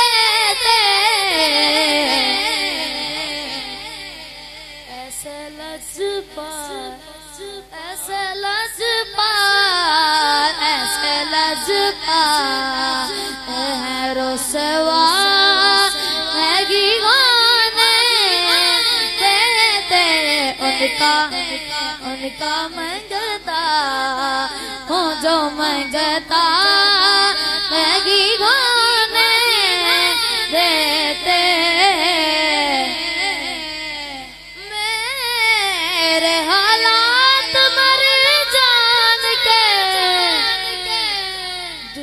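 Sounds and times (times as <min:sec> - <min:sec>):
boy singing into a microphone: 0:00.0 - 0:42.0.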